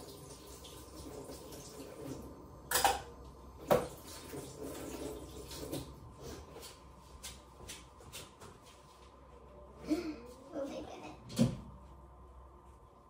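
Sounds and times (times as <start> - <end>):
dishes clattering: 2.7 - 3.1.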